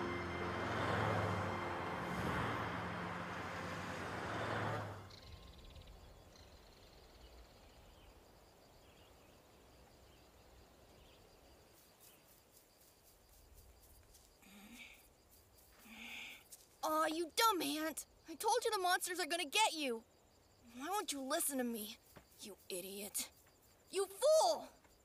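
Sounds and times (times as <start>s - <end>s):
car driving past: 0.0s - 5.8s.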